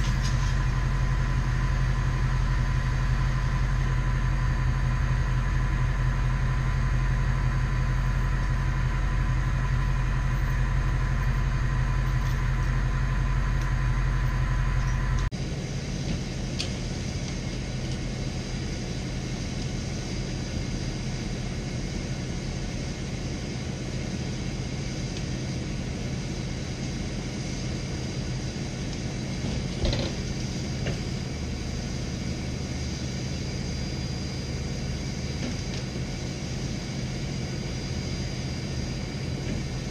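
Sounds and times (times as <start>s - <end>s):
truck engine running: 0.0s - 39.9s.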